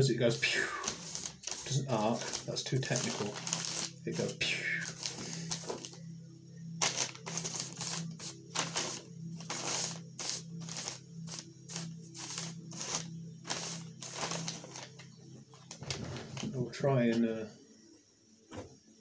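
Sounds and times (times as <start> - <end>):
crisp rustling strokes: 0.4 - 4.3, 6.8 - 15.0.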